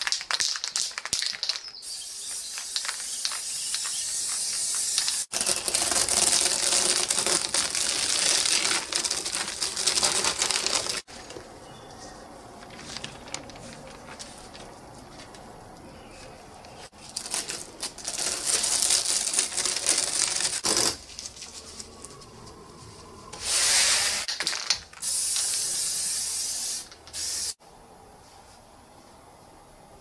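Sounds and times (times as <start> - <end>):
spray paint can hissing: 0.7 - 5.6, 23.4 - 24.3, 25.0 - 27.6.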